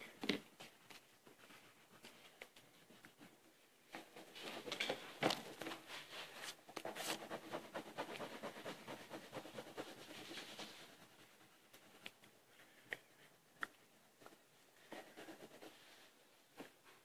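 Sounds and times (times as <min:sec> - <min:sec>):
crayon scratching on paper: 0:06.8 - 0:11.1, 0:14.9 - 0:16.0.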